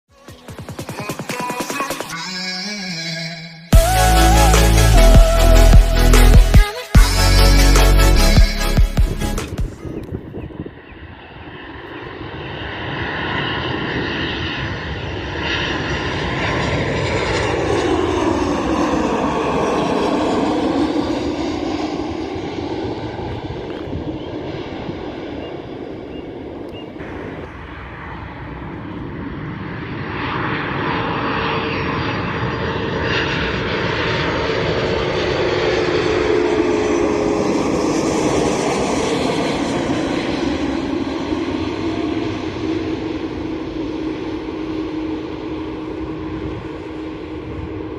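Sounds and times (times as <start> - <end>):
jet airliner engine whine: 0.1 - 47.9.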